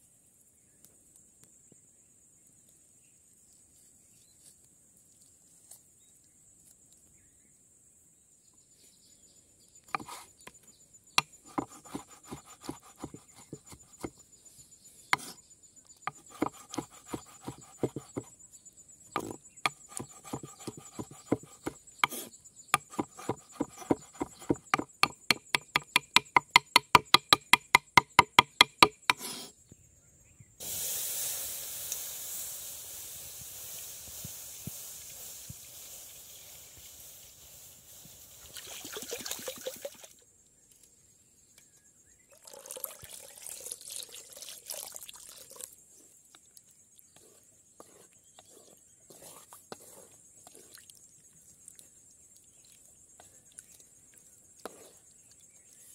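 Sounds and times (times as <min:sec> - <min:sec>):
insects trilling: 0:00.5 - 0:55.9
knife chopping on wooden board: 0:09.9 - 0:10.2, 0:11.2 - 0:14.2, 0:15.2 - 0:15.4, 0:16.1 - 0:18.3, 0:19.2 - 0:29.4
steady hiss: 0:30.6 - 0:38.8.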